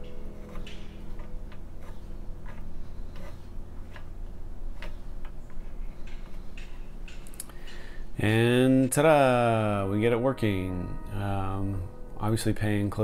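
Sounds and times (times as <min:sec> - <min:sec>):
light clicks and taps: 0:04.7 - 0:07.9.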